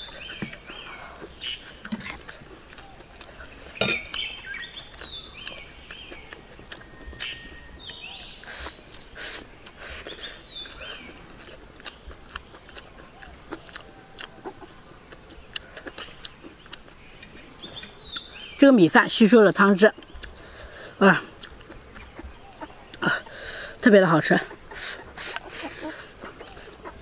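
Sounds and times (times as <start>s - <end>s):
chewing: 0.0s - 18.6s, 19.9s - 27.0s
bird chirps: 2.8s - 9.0s, 9.9s - 11.2s, 13.0s - 19.2s, 21.6s - 23.1s.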